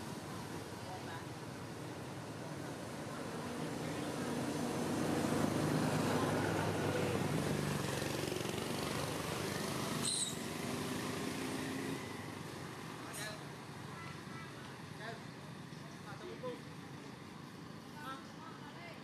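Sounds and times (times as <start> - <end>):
vehicle engine passing: 3.3 - 13.0
sharp high squeak: 10.0 - 10.4.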